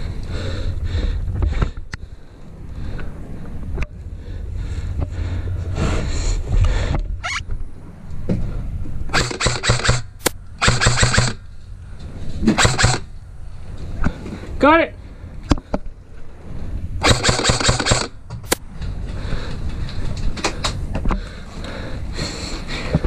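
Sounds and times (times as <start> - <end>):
airsoft gun shots: 9.1 - 11.4, 12.5 - 13.1, 17.0 - 18.6.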